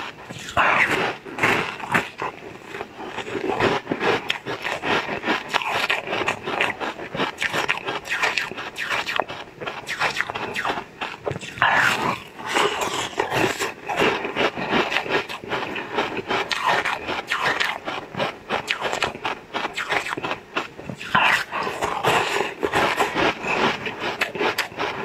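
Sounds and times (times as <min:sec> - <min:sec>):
crackling mouth sounds: 0:00.0 - 0:25.0
sweet being bitten and chewed: 0:00.0 - 0:25.0.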